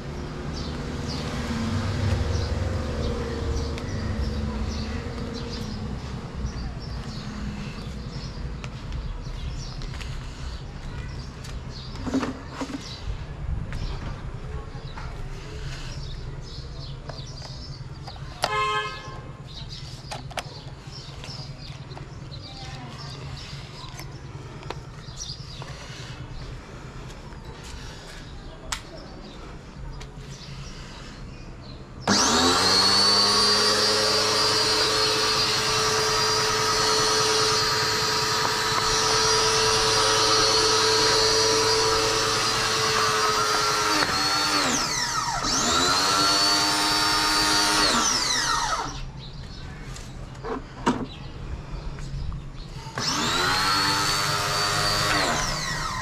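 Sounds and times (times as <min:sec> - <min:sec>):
pressure washer motor whining: 0:32.0 - 0:49.1, 0:52.9 - 0:56.0.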